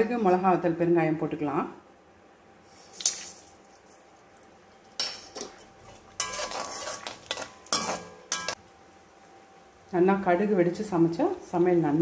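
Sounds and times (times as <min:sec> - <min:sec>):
metal spoon scraping iron pan: 0:06.2 - 0:08.6.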